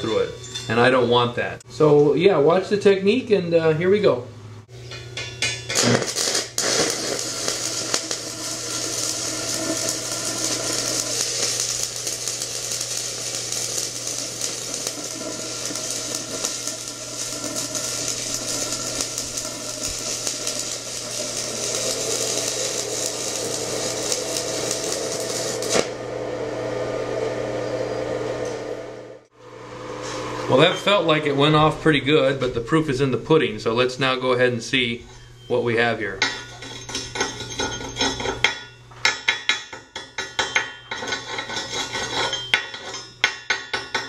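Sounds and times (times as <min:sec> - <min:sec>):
low hum: 0:04.3 - 0:35.6
welding arc crackling: 0:05.0 - 0:26.1, 0:36.2 - 0:44.0
arc sputters: 0:05.7 - 0:26.0.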